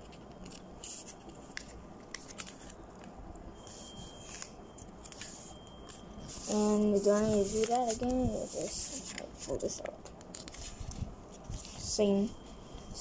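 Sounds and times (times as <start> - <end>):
paper crackling and rustling: 0.1 - 3.1, 3.7 - 12.0.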